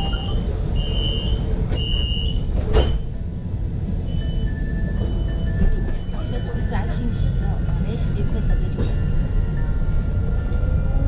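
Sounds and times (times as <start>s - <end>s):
tram rumble: 0.0s - 11.0s
short electronic beeps: 4.1s - 6.7s.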